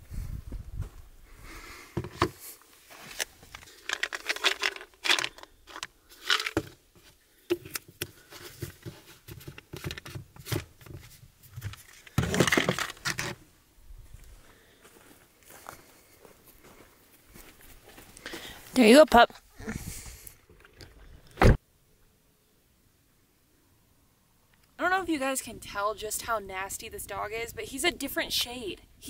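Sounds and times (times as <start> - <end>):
plastic containers rattling: 3.5 - 6.8, 8.3 - 13.4.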